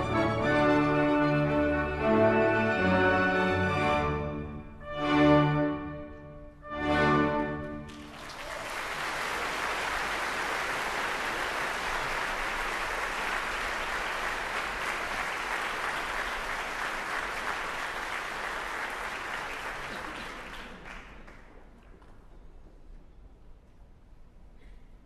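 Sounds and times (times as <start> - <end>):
audience applauding: 7.8 - 22.6.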